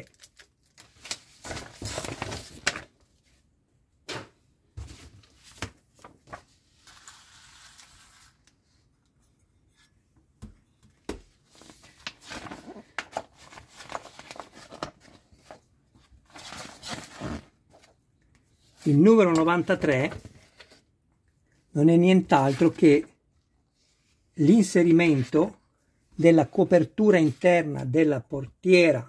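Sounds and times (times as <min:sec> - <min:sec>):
magazine pages rustling: 0:00.0 - 0:03.4, 0:04.8 - 0:08.6, 0:11.4 - 0:20.9, 0:22.2 - 0:23.1.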